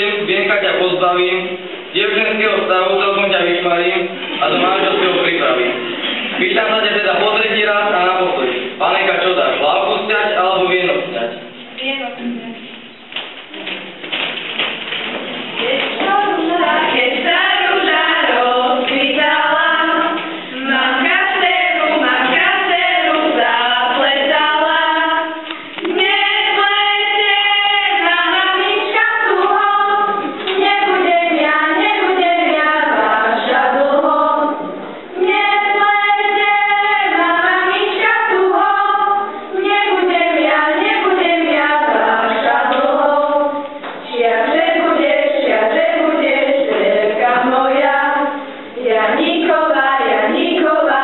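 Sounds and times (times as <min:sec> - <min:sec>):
children singing in unison: 0:15.6 - 0:51.0.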